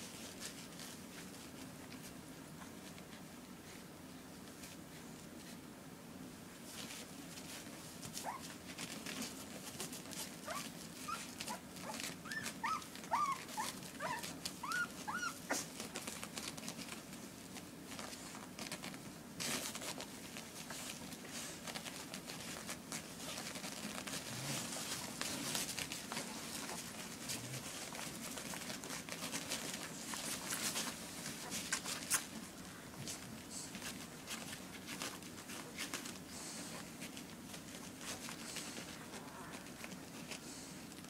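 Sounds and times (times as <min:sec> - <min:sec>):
shuffling and rustling: 0:00.0 - 0:41.0
puppies squeaking and whimpering: 0:10.4 - 0:15.6.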